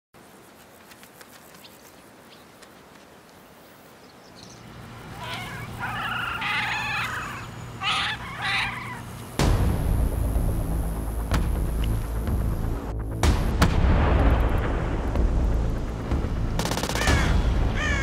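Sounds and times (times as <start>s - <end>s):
low steady drone: 6.7s - 18.0s.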